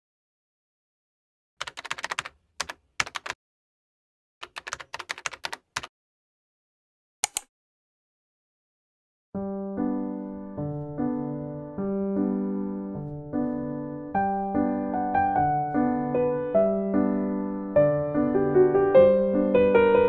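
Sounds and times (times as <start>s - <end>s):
keyboard key clicks: 7.2s - 7.5s
piano music: 9.4s - 20.0s.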